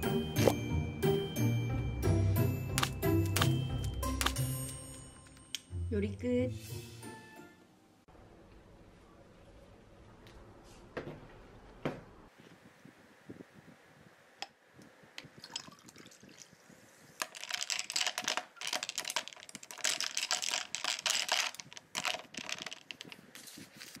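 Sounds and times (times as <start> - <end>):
dense crackling and clinking: 17.1 - 24.0
ice cubes clinking in a glass: 17.2 - 23.1.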